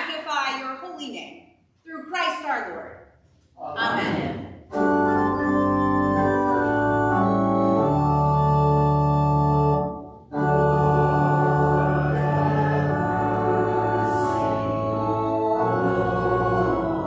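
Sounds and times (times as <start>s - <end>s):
church organ chords: 3.8s - 17.0s.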